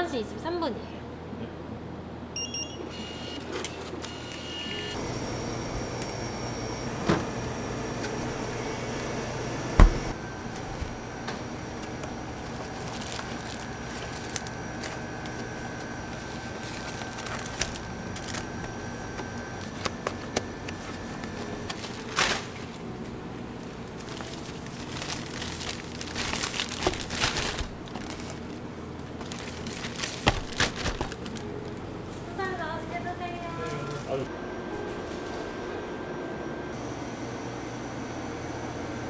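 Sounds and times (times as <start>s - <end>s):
steady background hum: 0.0s - 39.0s
plastic bag crinkling: 12.4s - 18.6s, 23.9s - 28.6s, 29.2s - 31.8s.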